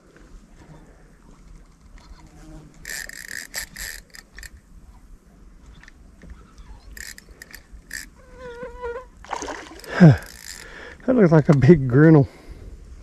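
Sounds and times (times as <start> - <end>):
insect buzzing: 1.9 - 4.5, 6.8 - 10.8
fishing reel drag buzzing: 2.8 - 4.6, 6.9 - 8.2, 9.5 - 10.8.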